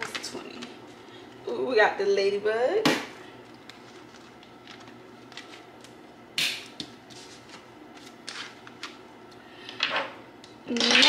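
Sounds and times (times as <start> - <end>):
plastic envelopes rustling: 3.5 - 6.0, 7.2 - 9.0.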